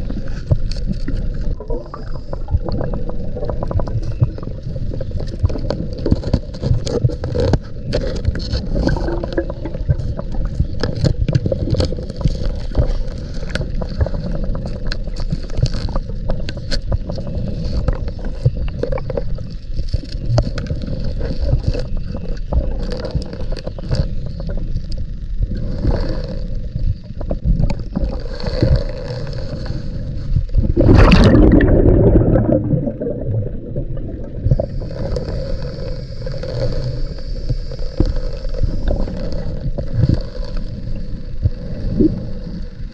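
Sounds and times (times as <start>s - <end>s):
reel clicks and scrapes: 0.0s - 30.7s, 34.4s - 42.9s
low underwater rumble: 0.0s - 42.9s
rush of bubbles: 1.1s - 6.0s, 8.6s - 11.9s, 30.6s - 35.4s.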